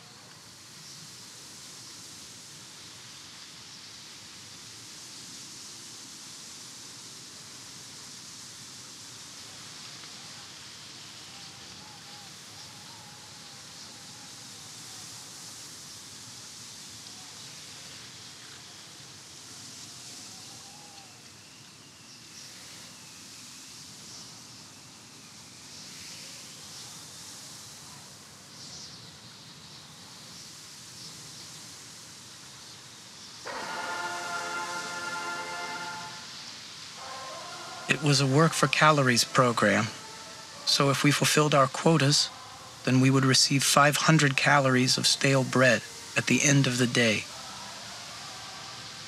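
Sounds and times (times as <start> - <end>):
faint wavering howl: 33.4 - 43.0.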